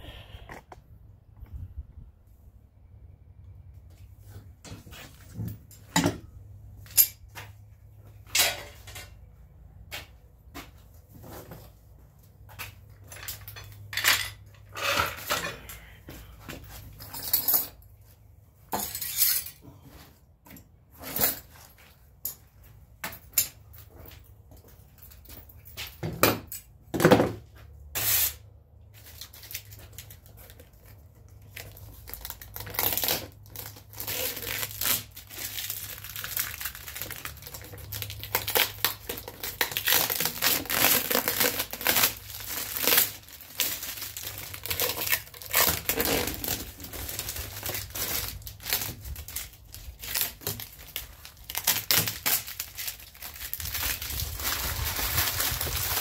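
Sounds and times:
plastic wrap and tape crinkling: 28.0 - 56.0.

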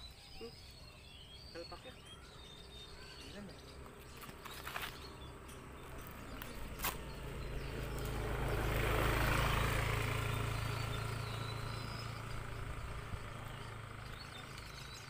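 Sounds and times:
vehicle passing by: 1.2 - 15.0.

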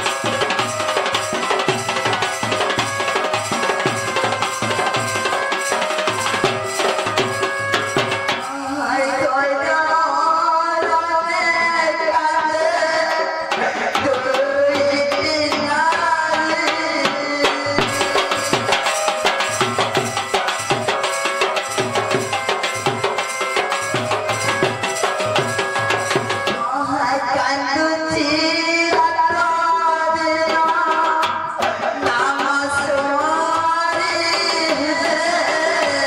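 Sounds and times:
barrel drum beaten fast: 0.0 - 8.6, 13.1 - 26.8.

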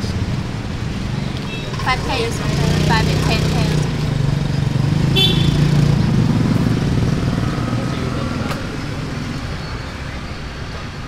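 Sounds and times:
street traffic hum: 0.0 - 11.0
motorbike engine passing: 1.7 - 9.4.

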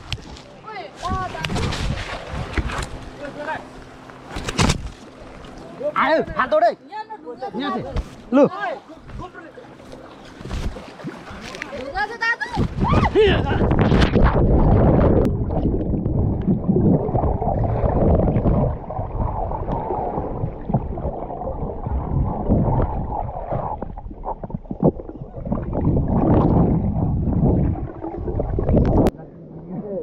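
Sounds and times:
underwater rushing and bubbling: 9.5 - 30.0.

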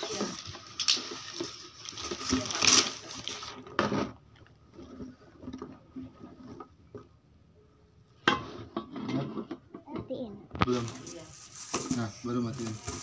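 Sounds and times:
cardboard and plastic rustling: 0.0 - 7.2, 10.6 - 13.0.

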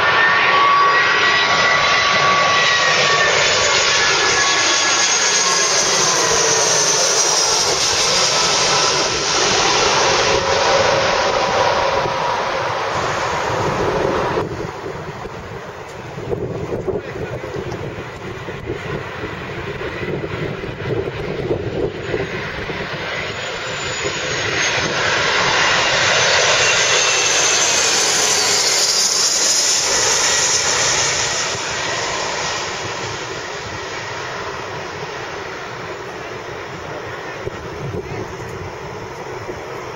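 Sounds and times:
high whine and falling whistle: 0.0 - 16.1, 21.6 - 37.6
jet passing overhead: 0.0 - 39.9
wind buffeting microphone: 10.0 - 23.2.

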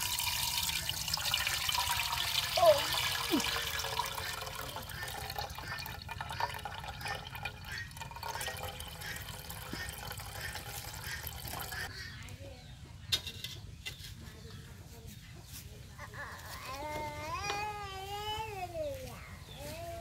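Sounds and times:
liquid trickling into metal pot: 0.0 - 11.9.

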